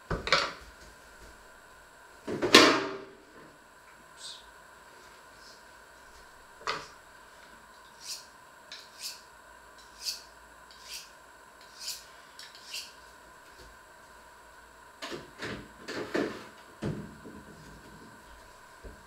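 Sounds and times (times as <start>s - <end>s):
knife scraping on honing steel: 9.8s - 13.0s.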